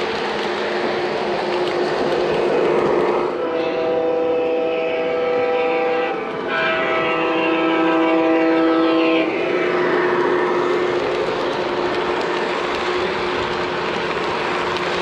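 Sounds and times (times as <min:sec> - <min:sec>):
model train running on track: 0:00.0 - 0:15.0
model train horn blasts: 0:03.0 - 0:10.3.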